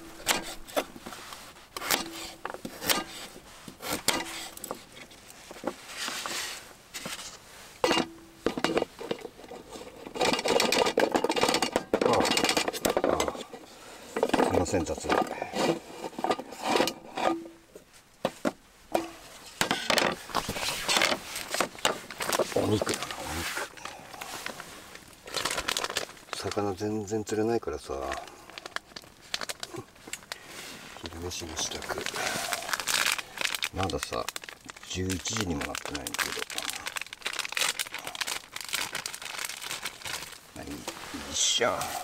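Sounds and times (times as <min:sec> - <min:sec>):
pieces scraped into metal pot: 0:14.1 - 0:17.5.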